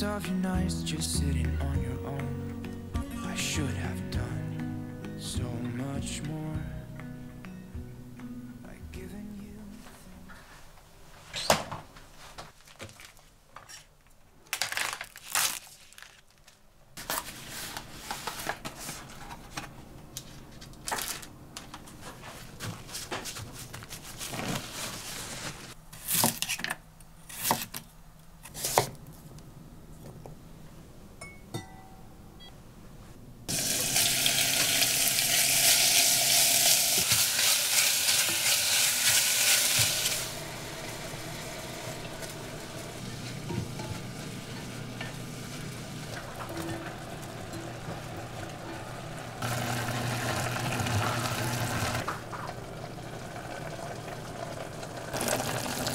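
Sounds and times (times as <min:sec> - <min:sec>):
beef sizzling in oil: 0:33.5 - 0:46.1, 0:55.0 - 0:55.9.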